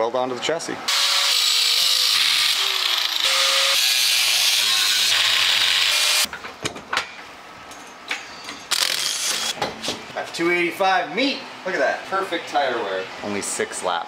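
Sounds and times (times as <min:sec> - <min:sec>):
angle grinder cutting steel: 0:00.9 - 0:06.3.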